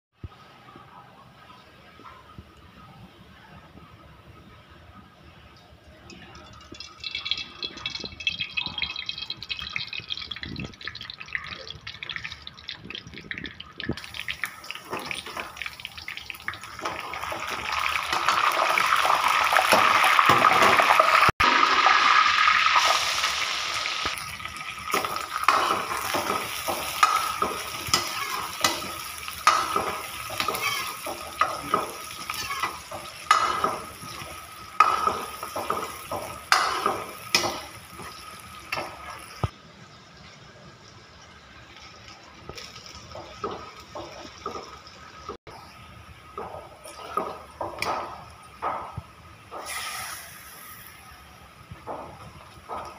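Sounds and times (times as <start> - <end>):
oil pouring into a pan: 6.7 - 17.9
spices sizzling in hot oil: 6.7 - 39.6, 41.4 - 52.9
metal ladle scraping a pan: 25.0 - 34.2.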